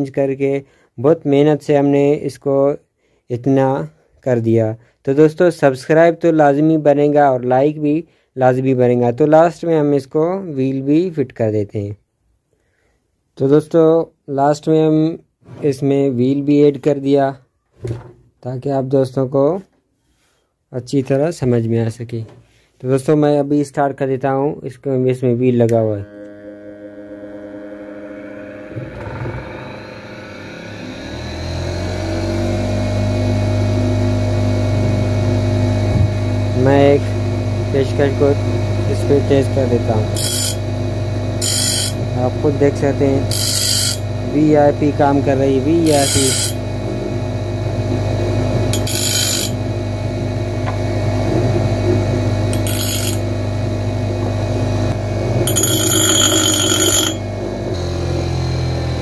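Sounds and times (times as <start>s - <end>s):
bench grinder motor whining and humming: 25.6s - 59.0s
screwdriver grinding on wheel: 40.2s - 40.7s, 41.4s - 42.1s, 43.0s - 44.5s, 45.7s - 46.7s, 48.7s - 49.6s, 52.5s - 53.3s, 55.4s - 57.3s.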